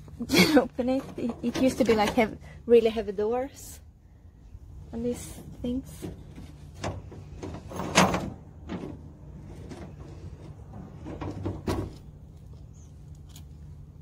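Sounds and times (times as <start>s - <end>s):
metallic clanks and rattles: 0.6s - 2.4s, 5.3s - 12.2s.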